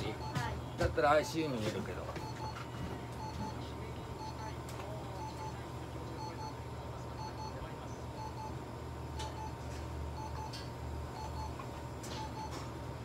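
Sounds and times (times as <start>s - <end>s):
low machine hum: 0.0s - 13.0s
short electronic beeps: 10.2s - 10.6s.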